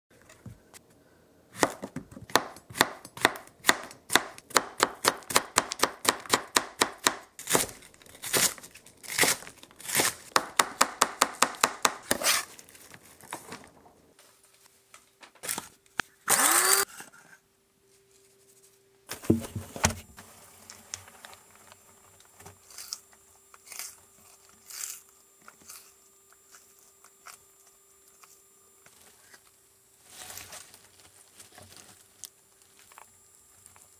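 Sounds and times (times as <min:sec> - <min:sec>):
faint steady hum: 0:00.1 - 0:33.9
knife chopping on cutting board: 0:01.6 - 0:12.4.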